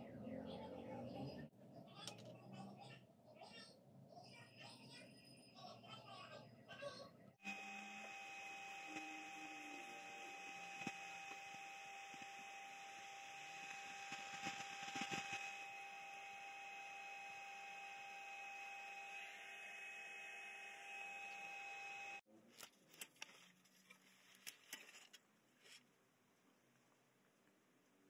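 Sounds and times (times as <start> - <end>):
electrical hum with high whine: 7.4 - 22.2.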